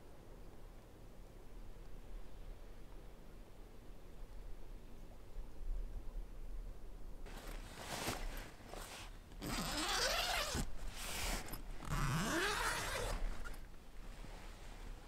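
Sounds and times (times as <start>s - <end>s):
tent zipper being pulled open: 7.3s - 15.0s.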